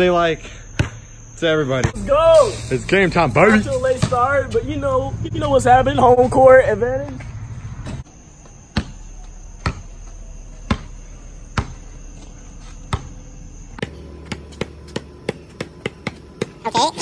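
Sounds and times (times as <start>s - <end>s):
night insects chirring: 0.0s - 17.0s
basketball bouncing on concrete: 0.7s - 1.1s, 7.8s - 17.0s.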